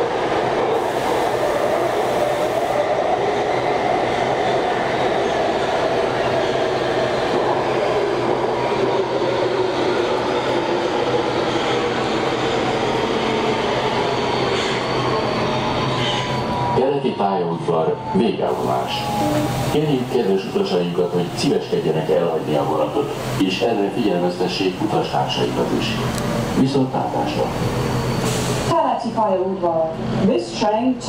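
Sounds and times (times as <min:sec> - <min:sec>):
metro train rumble: 0:00.0 - 0:31.0.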